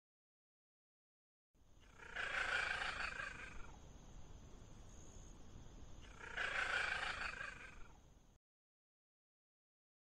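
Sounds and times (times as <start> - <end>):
wild cat calling: 1.8 - 3.8, 6.0 - 8.0.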